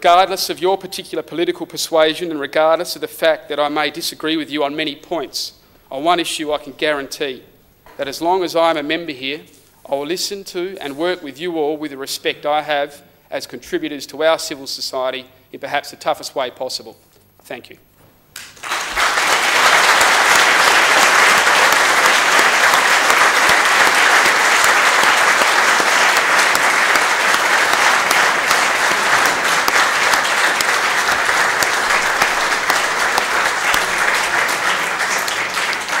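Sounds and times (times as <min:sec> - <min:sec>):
crowd applauding: 0:18.4 - 0:36.0.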